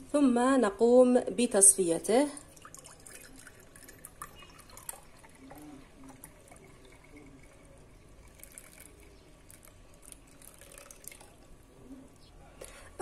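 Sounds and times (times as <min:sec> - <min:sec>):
juice trickling through strainer: 0:02.3 - 0:11.9.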